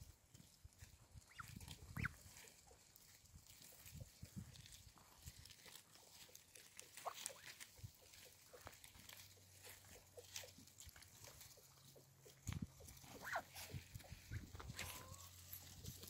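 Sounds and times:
ducks pecking and rustling greens: 0.0 - 16.0
duck soft calls: 1.3 - 2.2, 6.3 - 8.6, 11.6 - 15.4.

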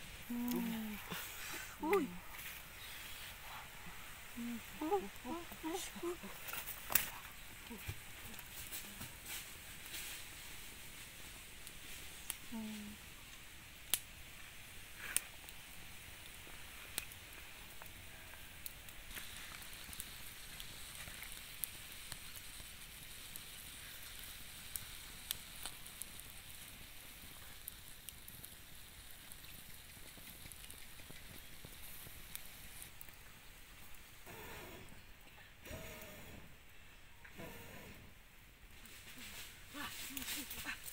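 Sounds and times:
wood fire crackling and popping: 0.0 - 37.7, 38.3 - 40.9
steady sizzling hiss: 0.0 - 40.9.

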